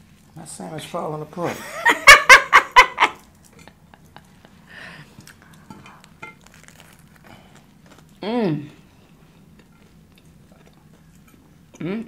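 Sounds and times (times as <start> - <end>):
people laughing: 1.5 - 4.6
person eating sandwiches: 3.1 - 11.8.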